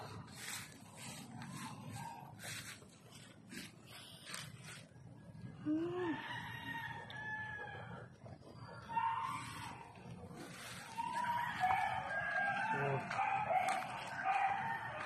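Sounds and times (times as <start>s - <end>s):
rooster crowing: 6.0s - 8.0s, 10.8s - 15.0s.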